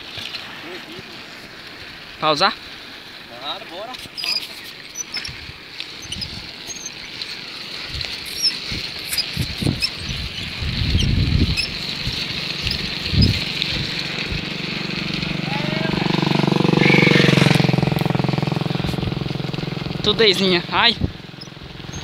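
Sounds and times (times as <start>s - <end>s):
wind buffeting microphone: 5.0s - 6.6s, 7.7s - 16.7s, 17.3s - 22.0s.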